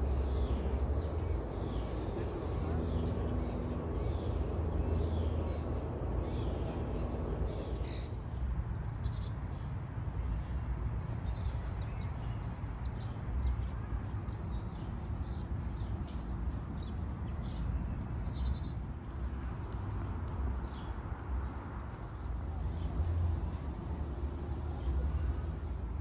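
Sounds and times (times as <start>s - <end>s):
steady low rumble: 0.0s - 9.2s
small birds chirping: 0.0s - 15.9s.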